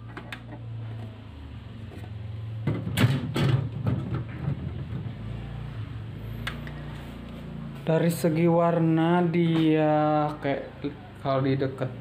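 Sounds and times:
clattering and rustling: 0:02.0 - 0:05.2.

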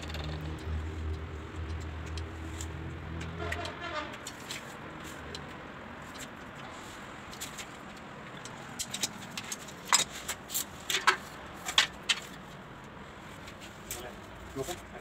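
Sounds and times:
sharp irregular clicks and taps: 0:00.0 - 0:06.7, 0:07.3 - 0:10.1.

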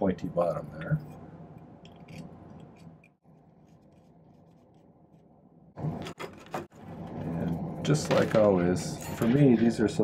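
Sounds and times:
hands scratching and rubbing tools: 0:01.9 - 0:05.4.

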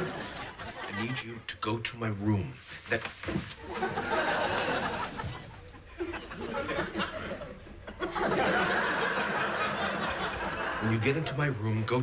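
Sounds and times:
studio audience laughing: 0:00.0 - 0:01.2, 0:03.6 - 0:11.5.

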